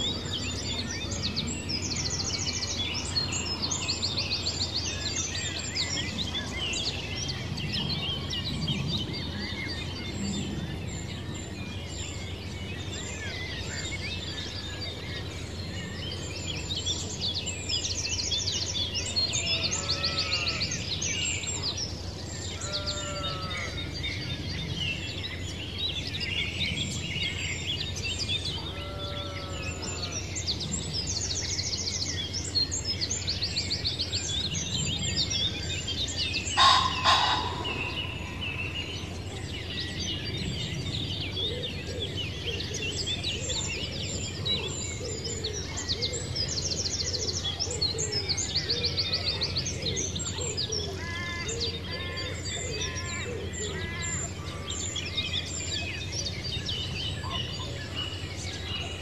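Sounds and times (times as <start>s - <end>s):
birds chirping and trilling: 0.0s - 59.0s
rapid rattling bird call: 36.6s - 38.2s.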